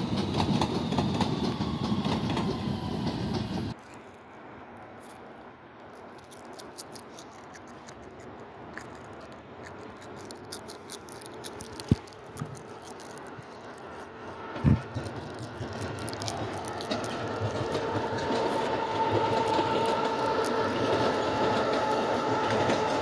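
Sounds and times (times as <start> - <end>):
faint railway noise: 0.0 - 23.0
small clicks and rattles: 5.8 - 14.1, 14.8 - 21.7.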